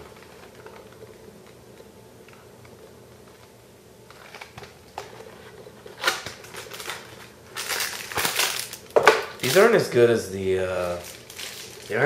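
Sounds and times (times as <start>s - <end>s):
cardboard and plastic crackling: 3.2s - 9.9s, 10.7s - 12.0s.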